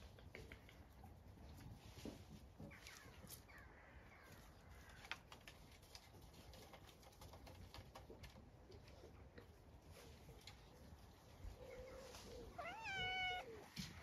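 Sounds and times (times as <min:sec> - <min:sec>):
faint distant birdsong: 0:00.2 - 0:05.6, 0:08.7 - 0:14.0.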